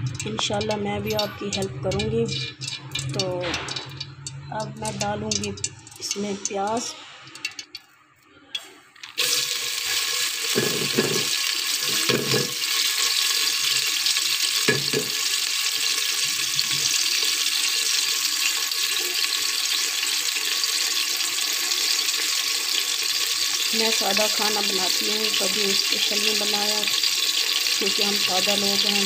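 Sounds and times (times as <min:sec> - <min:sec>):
onion sizzling in hot fat: 0:08.6 - 0:29.0.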